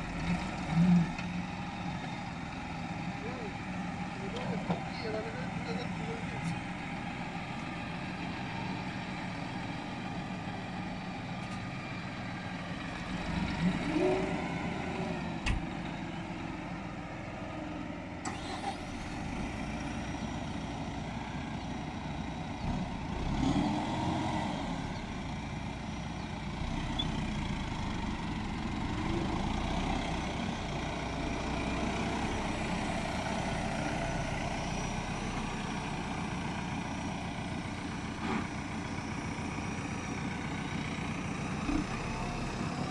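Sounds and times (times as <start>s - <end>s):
tractor diesel engines running: 0.0s - 42.9s.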